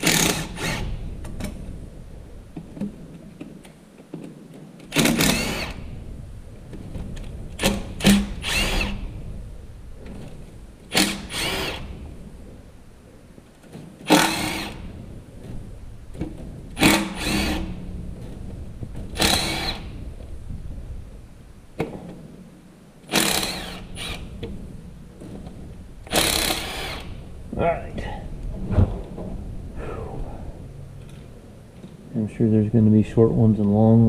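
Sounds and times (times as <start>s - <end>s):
power tool spinning bolts: 0.0s - 1.1s, 4.9s - 6.0s, 7.6s - 9.2s, 10.9s - 12.0s, 14.0s - 15.0s, 16.8s - 17.8s, 19.1s - 20.0s, 23.1s - 24.4s, 26.0s - 27.3s.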